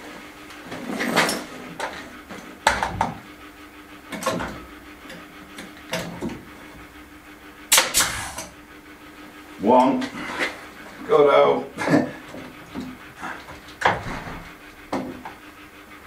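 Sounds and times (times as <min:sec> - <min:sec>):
nail gun firing: 0:07.7 - 0:08.5.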